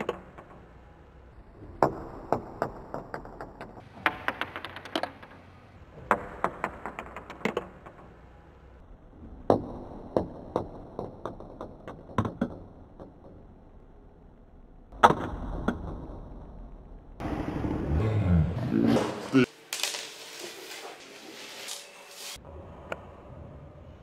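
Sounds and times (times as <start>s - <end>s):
dice clicking on hard surface: 2.6s - 5.5s.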